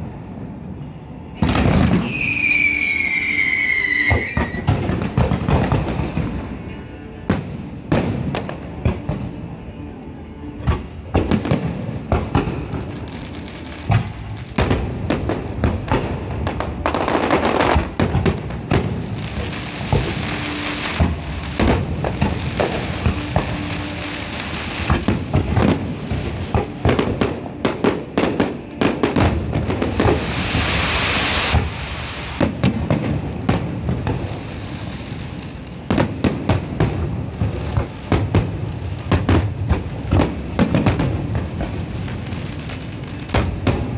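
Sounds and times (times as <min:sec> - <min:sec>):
fireworks bangs and bursts: 0:01.4 - 0:06.5, 0:07.3 - 0:09.4, 0:10.6 - 0:43.9
thick hiss: 0:29.9 - 0:32.4.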